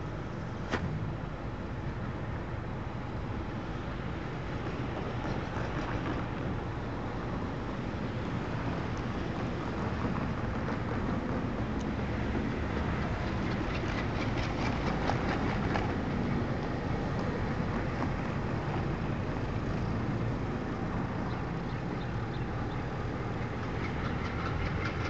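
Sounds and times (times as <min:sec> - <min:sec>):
distant diesel locomotives rumbling: 0:21.3 - 0:25.0.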